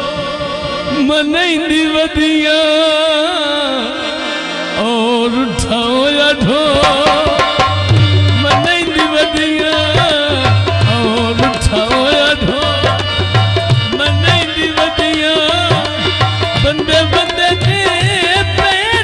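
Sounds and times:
harmonium melody: 0:00.0 - 0:19.0
hand drum rhythm: 0:06.7 - 0:19.0.

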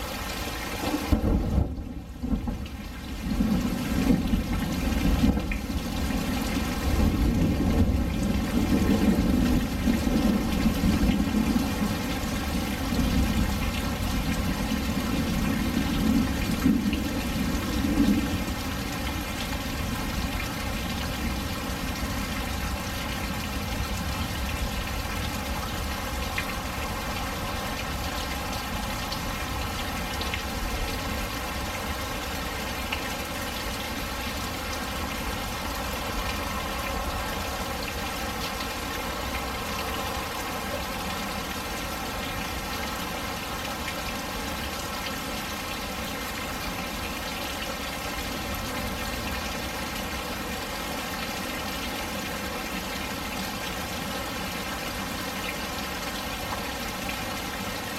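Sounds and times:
steady rain: 0:00.0 - 0:57.9
low rumble of thunder: 0:01.0 - 0:31.7.

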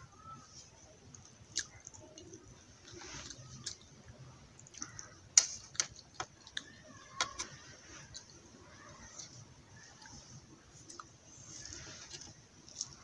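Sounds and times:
eating clicks and smacks: 0:01.1 - 0:03.9.

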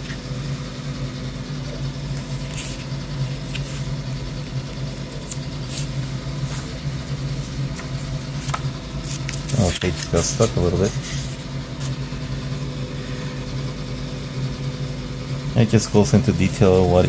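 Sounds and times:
steady low hum: 0:00.0 - 0:17.0
paper pages rustling: 0:01.6 - 0:12.0.

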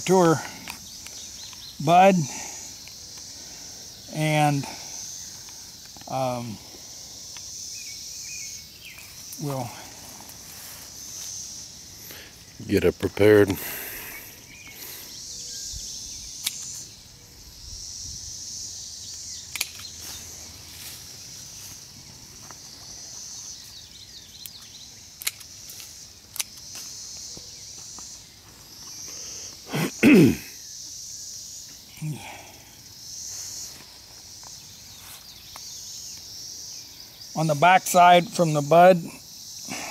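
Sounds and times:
crickets and katydids chorus: 0:00.0 - 0:39.9
pruning shears clicking: 0:19.5 - 0:20.0, 0:24.4 - 0:26.6
man grunting: 0:29.7 - 0:30.5
man sneezing: 0:29.7 - 0:30.6.

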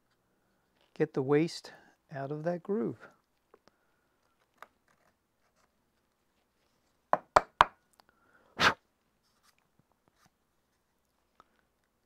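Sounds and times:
sharp wooden knocks: 0:07.2 - 0:07.8.

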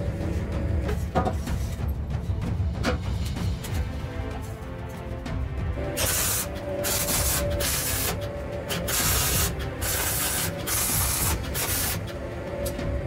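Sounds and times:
welder crackling hiss: 0:06.0 - 0:12.2.

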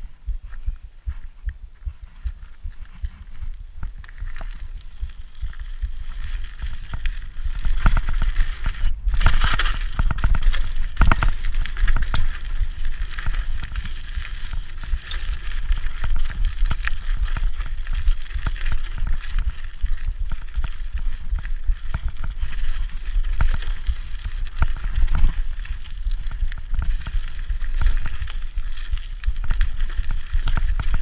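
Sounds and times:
bike tyres crunching over dirt: 0:00.0 - 0:31.0
low wind rumble on microphone: 0:00.0 - 0:31.0
bike rattling and knocking: 0:02.1 - 0:31.0.

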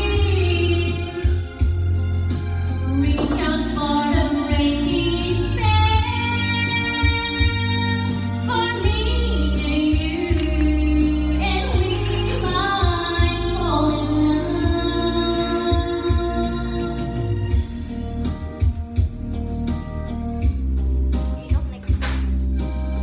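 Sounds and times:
woman singing into a microphone: 0:00.0 - 0:01.7, 0:02.8 - 0:17.3
backing music with bass: 0:00.0 - 0:23.0.

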